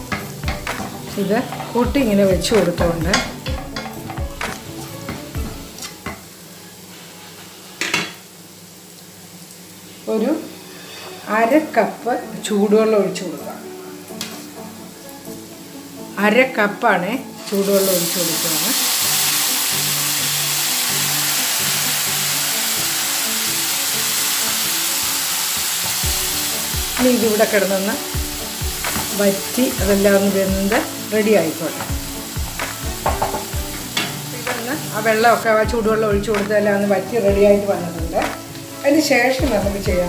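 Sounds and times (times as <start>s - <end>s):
spatula scraping in frying pan: 0.0s - 2.2s
background music: 0.0s - 6.9s, 10.1s - 40.0s
masala sizzling in oil: 0.0s - 40.0s.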